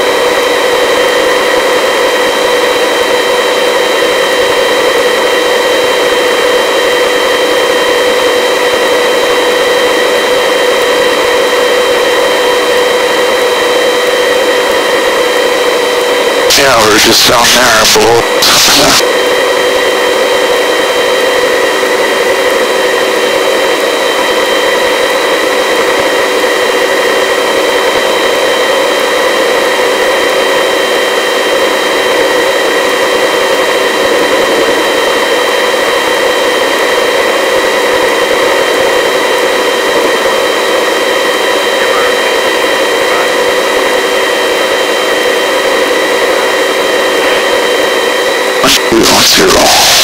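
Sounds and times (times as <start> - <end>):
helicopter hovering: 0.0 - 50.0.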